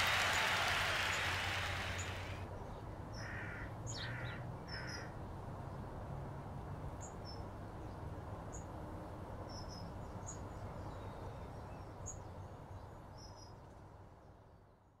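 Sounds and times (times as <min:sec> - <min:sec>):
small birds chirping: 0:00.0 - 0:02.4.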